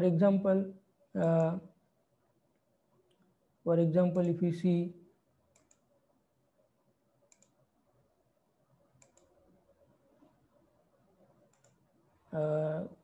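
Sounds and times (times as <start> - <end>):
faint computer mouse clicks: 5.5 - 5.9, 7.3 - 7.6, 9.0 - 9.4, 11.5 - 11.8.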